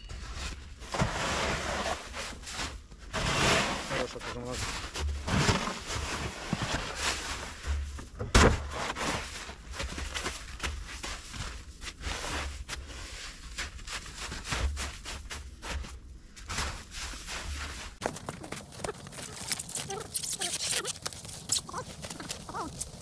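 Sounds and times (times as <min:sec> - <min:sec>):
boots crunching in snow: 0:16.5 - 0:23.0.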